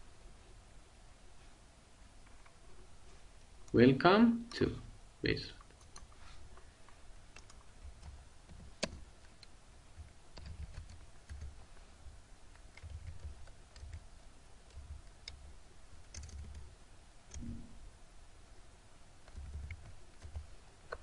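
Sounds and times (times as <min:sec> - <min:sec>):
typing on computer keyboard: 0:07.4 - 0:09.0, 0:10.0 - 0:11.6, 0:12.5 - 0:14.0, 0:16.0 - 0:16.7, 0:19.2 - 0:21.0.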